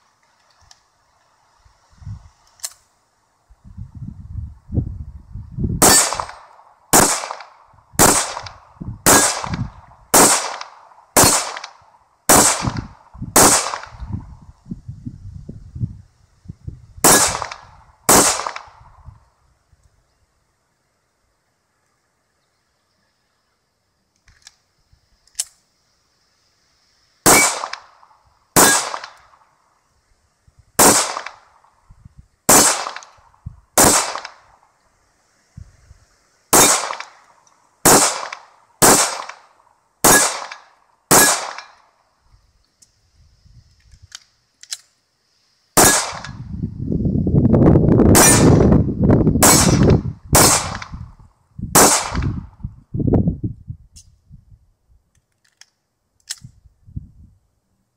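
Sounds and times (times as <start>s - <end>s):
wind rumble on microphone: 1.6s - 2.5s, 3.4s - 6.4s, 7.6s - 10.2s, 12.4s - 20.0s, 31.8s - 32.4s, 33.2s - 34.2s, 35.5s - 36.1s, 42.3s - 44.2s, 45.8s - 55.1s, 56.3s - 57.5s
pistol shots: 5.8s - 14.0s, 17.0s - 18.8s, 27.2s - 29.4s, 30.8s - 31.7s, 32.5s - 33.2s, 33.8s - 34.5s, 36.5s - 41.8s, 45.8s - 46.4s, 48.1s - 48.7s, 49.4s - 51.0s, 51.8s - 52.4s.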